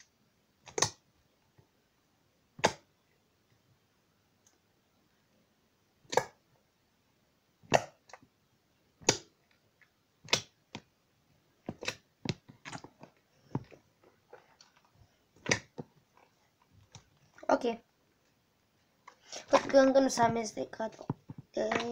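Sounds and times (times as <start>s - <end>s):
slime squelching: 7.6s - 8.2s, 11.6s - 17.8s, 19.0s - 21.9s.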